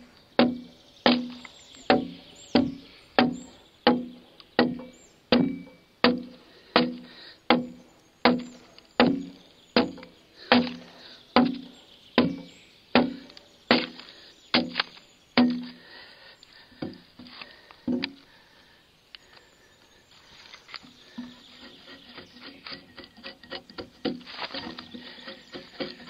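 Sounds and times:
axe chopping a log: 0.4s - 15.7s.

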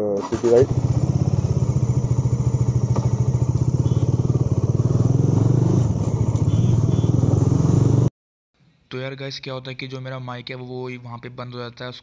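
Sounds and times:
motorcycle engine running: 0.2s - 8.1s.

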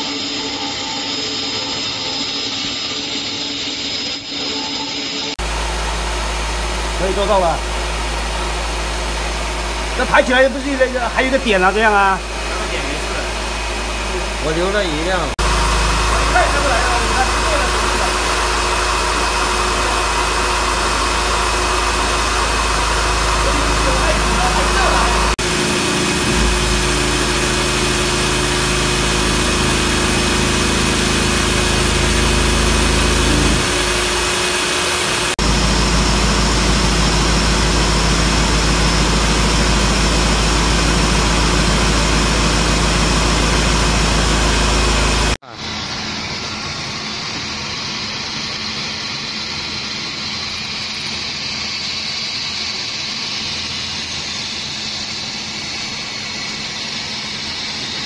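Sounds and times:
industrial machinery running: 0.0s - 58.0s
low hum: 5.4s - 45.4s.

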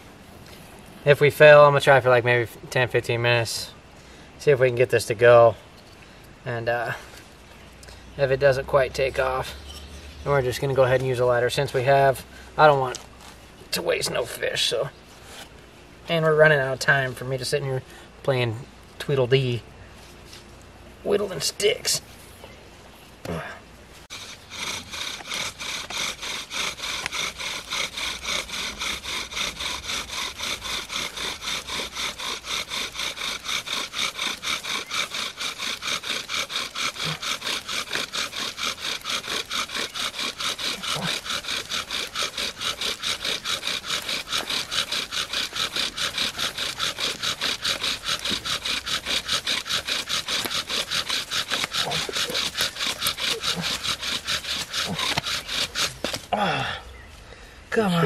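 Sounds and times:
wooden spindle rubbing in fireboard: 24.0s - 56.3s.

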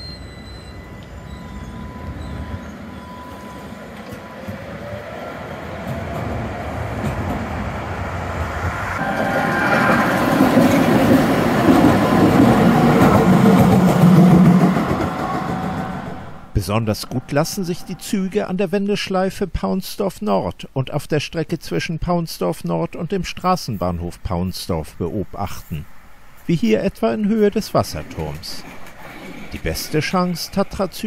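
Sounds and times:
tram wheels rumbling on rails: 0.0s - 18.3s, 27.3s - 31.0s.

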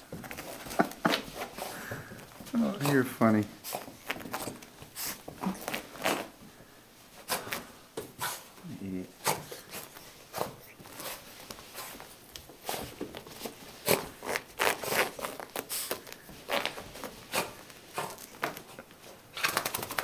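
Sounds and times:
dog rubbing fur on carpet: 2.4s - 6.4s, 9.2s - 18.7s.

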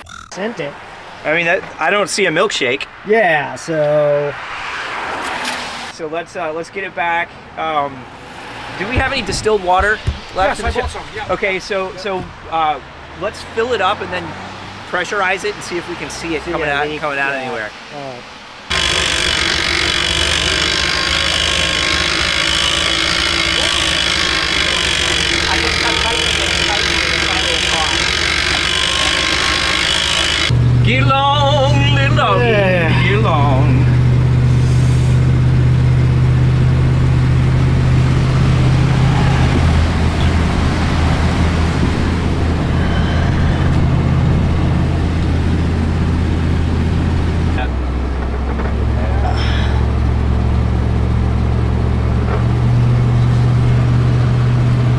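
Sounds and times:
road noise: 0.0s - 54.9s
truck engine droning: 7.8s - 17.8s, 18.6s - 54.9s
electric winch running: 18.7s - 34.0s, 36.7s - 47.6s.

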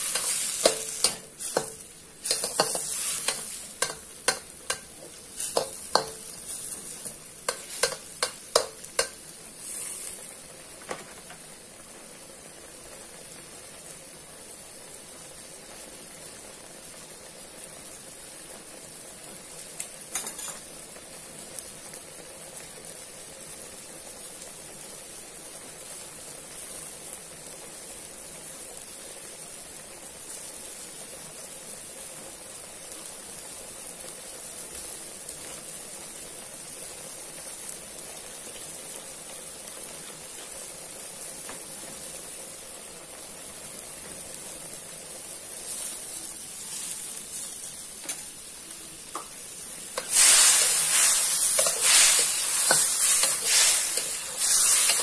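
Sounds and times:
metal spatula scraping a wok: 0.0s - 10.2s, 50.0s - 55.0s
meat sizzling in sauce: 0.0s - 55.0s.

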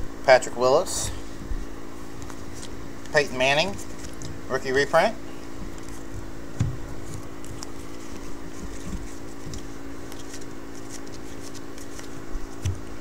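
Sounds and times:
low electrical hum: 0.0s - 13.0s
cards flicking and rustling: 2.1s - 4.5s, 5.7s - 13.0s.

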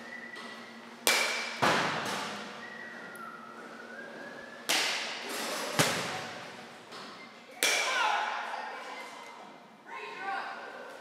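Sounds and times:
bat hitting ball: 1.0s - 2.3s.

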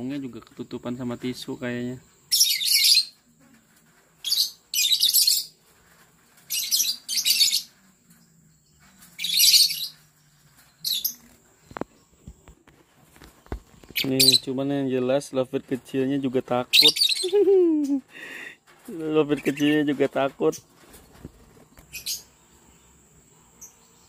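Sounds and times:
birds chattering shrilly: 2.2s - 3.2s, 4.2s - 5.5s, 10.8s - 11.3s, 13.8s - 14.6s, 16.7s - 19.9s, 21.8s - 22.5s.

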